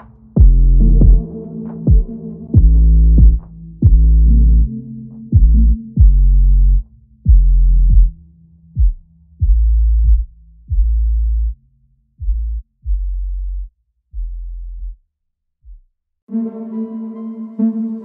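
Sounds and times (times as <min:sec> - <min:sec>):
deep booming bass notes: 0:00.0 - 0:08.2, 0:08.8 - 0:11.6, 0:12.2 - 0:15.0
steady synth chord: 0:00.5 - 0:06.0.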